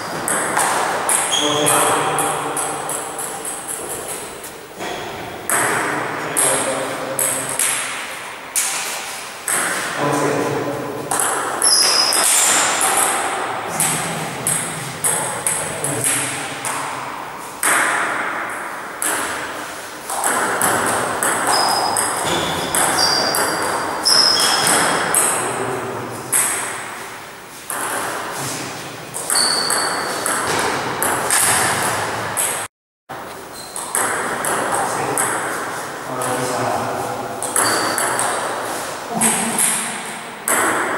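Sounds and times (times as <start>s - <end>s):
short high squeaks: 11.6s - 12.8s, 21.5s - 24.8s, 29.3s - 30.3s, 37.6s - 38.1s.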